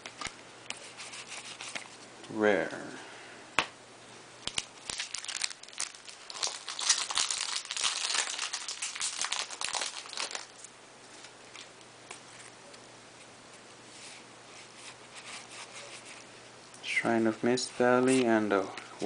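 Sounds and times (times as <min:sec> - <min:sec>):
foil pack crinkling and tearing: 0:04.5 - 0:10.6.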